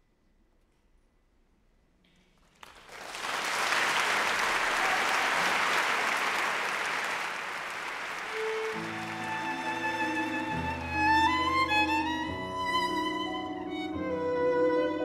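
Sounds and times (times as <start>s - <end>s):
audience applause: 2.5s - 12.1s.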